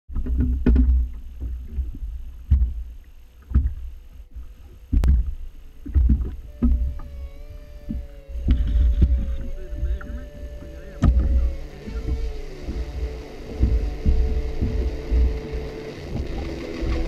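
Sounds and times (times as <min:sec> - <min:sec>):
faint steady hum: 0:00.1 - 0:17.0
wind and water rumble: 0:00.1 - 0:17.0
heavy thumps on boat deck: 0:04.9 - 0:17.0.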